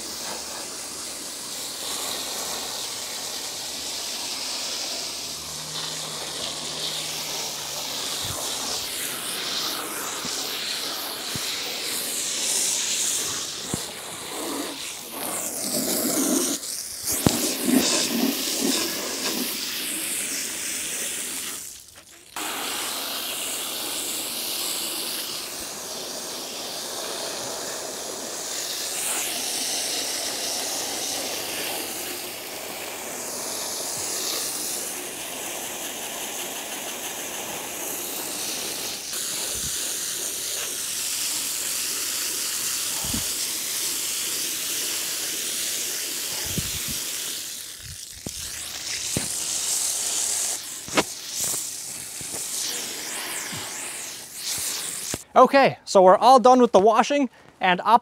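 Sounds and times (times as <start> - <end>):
hose spraying water: 0.0 - 57.2
water splashing: 3.7 - 26.2, 46.2 - 55.2.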